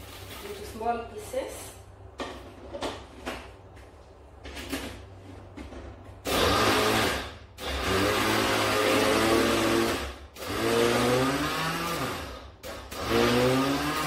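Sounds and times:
blender grinding biscuits: 6.3s - 14.0s.

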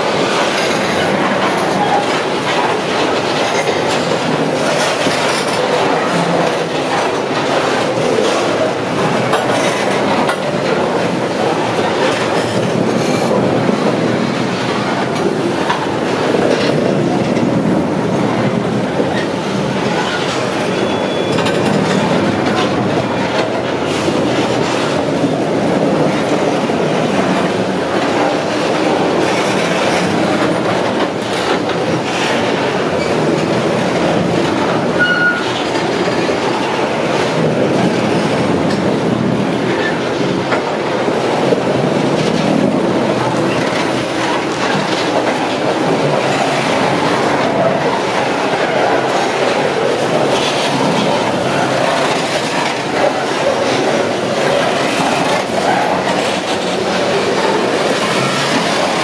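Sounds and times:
freight train rumbling past: 0.0s - 59.0s
train wheel squeals: 20.0s - 22.2s, 35.0s - 35.7s.

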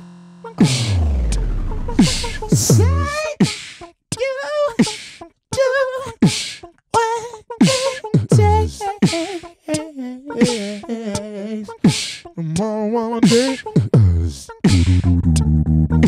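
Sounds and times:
person beatboxing: 0.6s - 1.4s, 2.0s - 16.0s.

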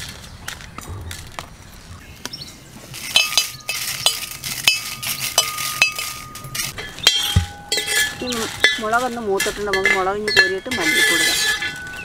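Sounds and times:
chillies rustling: 0.0s - 12.0s
spoon scraping and clinking in pan: 3.1s - 12.0s.

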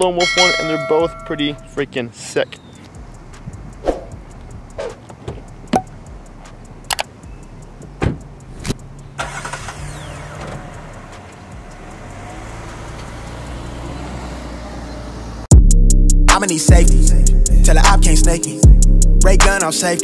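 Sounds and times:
car engine starting and idling: 3.0s - 15.5s
sharp clicks: 5.6s - 7.2s.

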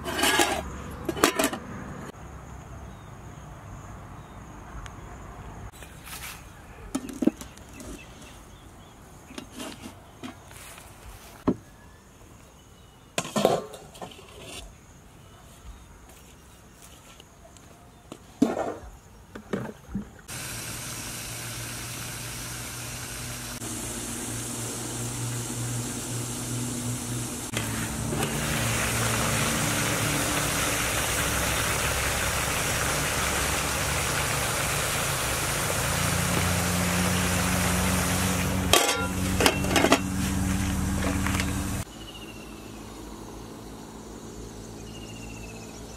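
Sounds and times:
pot boiling hard: 20.3s - 41.9s.

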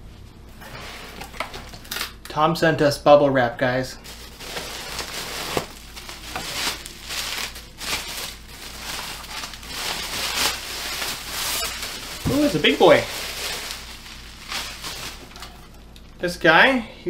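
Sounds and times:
bubble wrap rustling: 4.0s - 16.0s.

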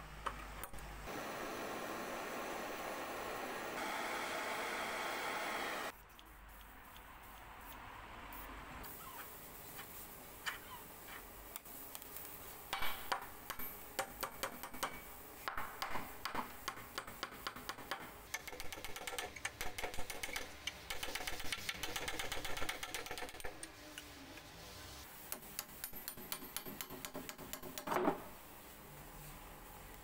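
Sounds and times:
hatchet tapping and scraping metal: 12.7s - 24.1s, 25.3s - 28.0s.

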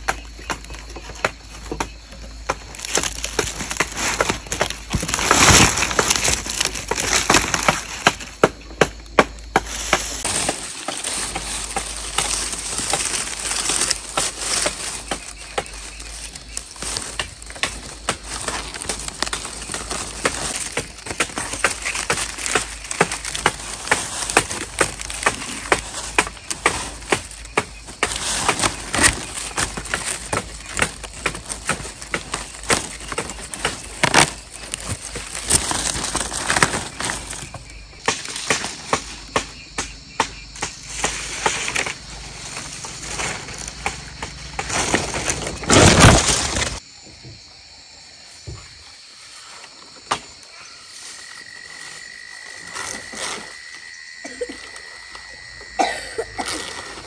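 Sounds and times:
bamboo knocks and chops: 0.0s - 47.4s, 50.0s - 50.4s
rustling: 2.1s - 8.3s, 9.6s - 39.4s, 40.6s - 46.8s.

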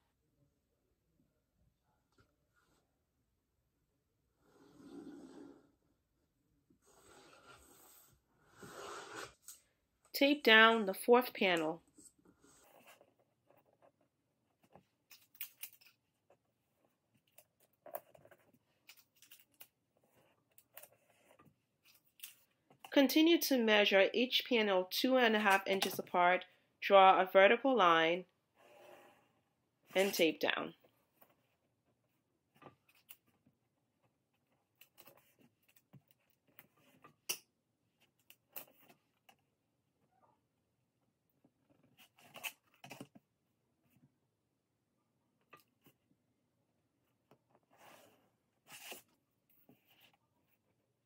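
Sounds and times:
tape and paper crackling: 17.2s - 22.5s
paper and tape rustling: 47.6s - 50.2s.

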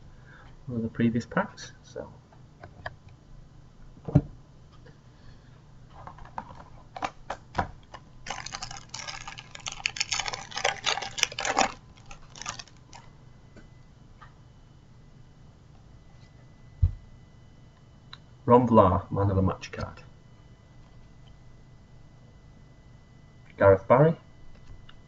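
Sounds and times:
card packet wrapper tearing: 7.9s - 13.1s.

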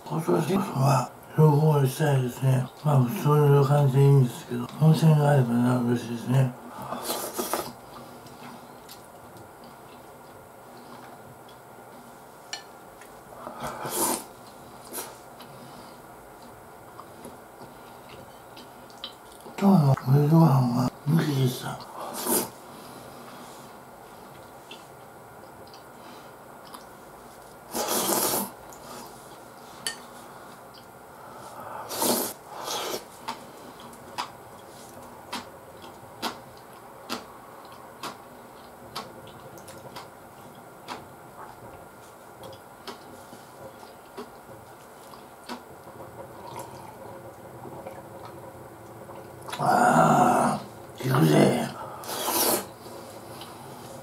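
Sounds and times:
quiet chewing: 6.8s - 20.0s, 21.8s - 31.6s, 32.6s - 49.8s, 52.0s - 54.0s.

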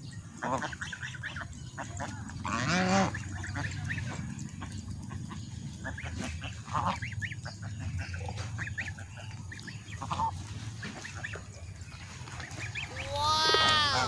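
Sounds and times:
low steady rumble: 0.0s - 14.0s
geese honking harshly: 0.4s - 11.5s
geese calling softly: 0.4s - 14.0s.

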